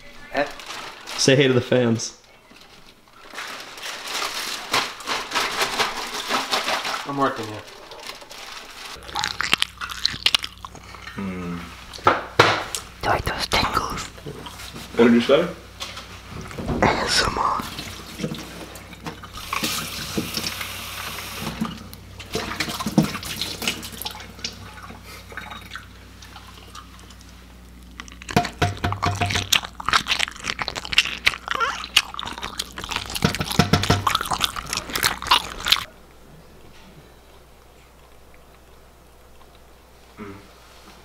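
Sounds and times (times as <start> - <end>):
water running from a tap: 19.2 - 26.5.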